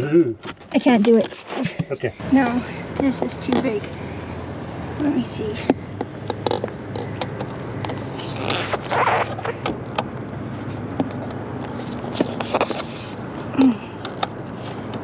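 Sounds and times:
scraping rustle: 6.4s - 9.6s, 10.6s - 13.6s.

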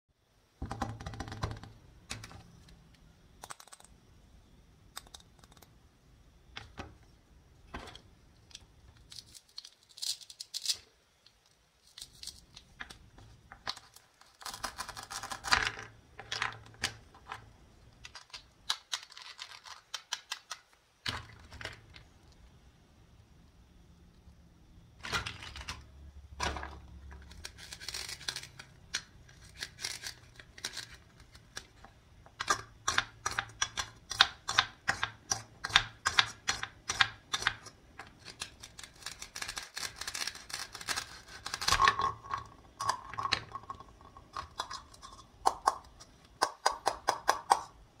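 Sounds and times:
plastic toy pieces clicking: 3.4s - 3.9s, 8.5s - 12.6s, 18.0s - 21.8s, 32.4s - 43.6s.

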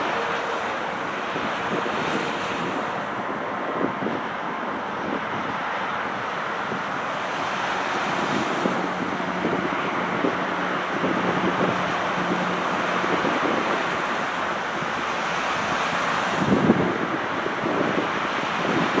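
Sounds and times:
wind on microphone: 0.0s - 19.0s.

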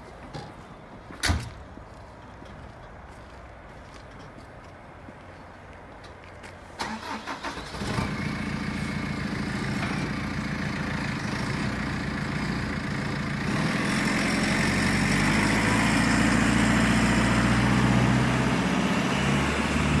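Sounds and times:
diesel engine starting and idling: 6.8s - 20.0s.

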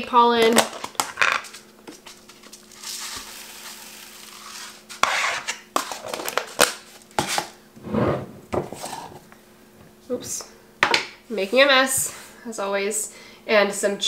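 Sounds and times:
granules poured with rustling hiss: 2.7s - 4.8s.

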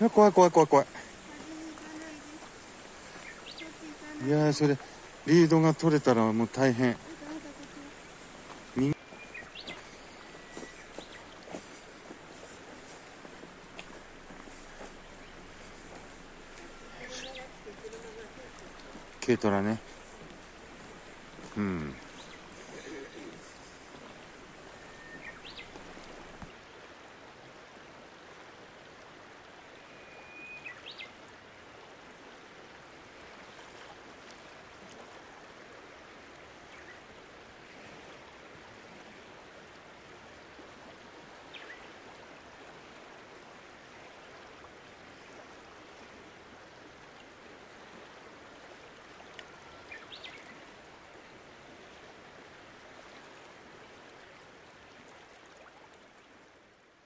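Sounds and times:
small waterfall and stream: 0.0s - 57.0s
short bird calls: 8.9s - 11.3s, 21.3s - 26.2s.

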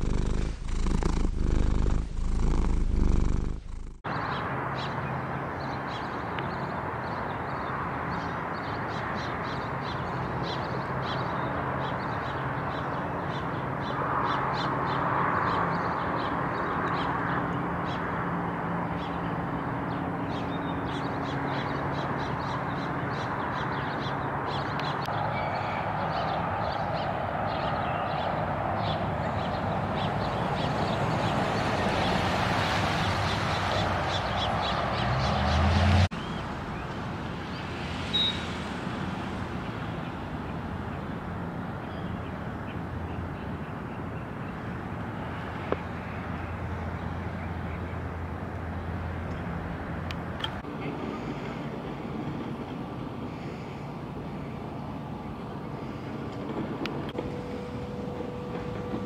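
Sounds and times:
cat purring: 0.0s - 4.0s
steady low hum: 0.0s - 4.0s
birds chirping: 0.0s - 18.2s, 18.8s - 38.5s.

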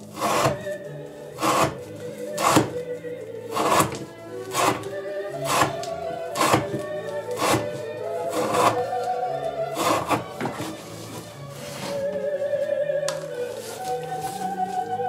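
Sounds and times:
background music: 0.0s - 15.0s
knife cutting rope on board: 1.4s - 2.8s, 3.6s - 8.9s.

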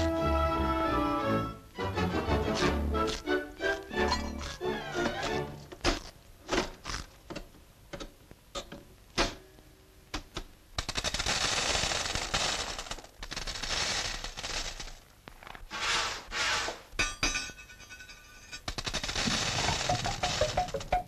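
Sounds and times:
cartoon rattling clatter: 18.6s - 21.0s
cartoon knocks and bangs: 19.4s - 21.0s.

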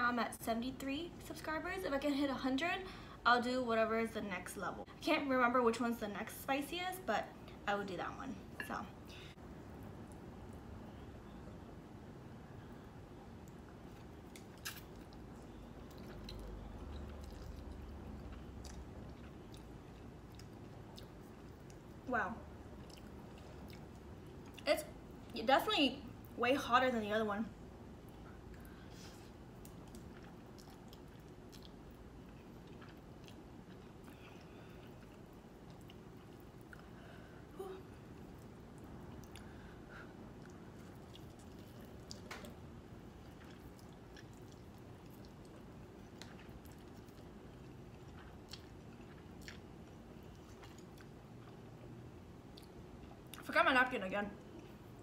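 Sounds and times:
person chewing noodles: 13.3s - 22.0s, 22.6s - 24.6s, 28.0s - 37.0s, 37.9s - 53.4s.

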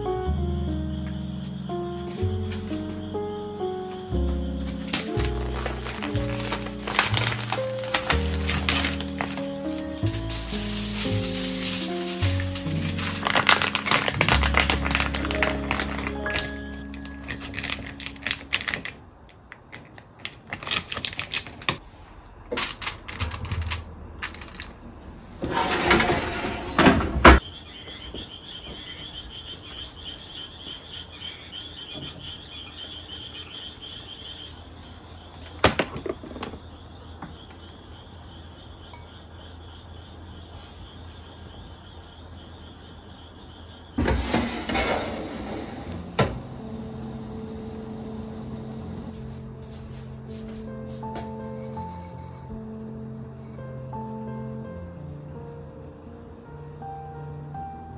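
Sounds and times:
faint steady high tone: 38.8s - 39.6s.

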